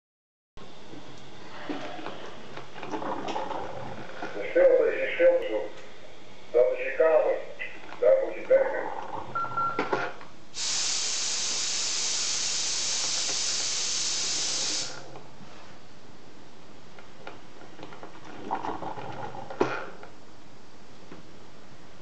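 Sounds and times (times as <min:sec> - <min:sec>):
steady hiss: 0:10.5 - 0:15.1.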